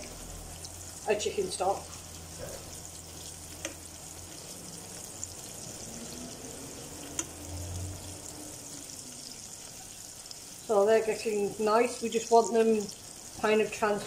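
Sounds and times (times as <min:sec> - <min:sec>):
onions sizzling in oil: 0:00.0 - 0:14.0
spatula clicking against pan: 0:07.1 - 0:07.4.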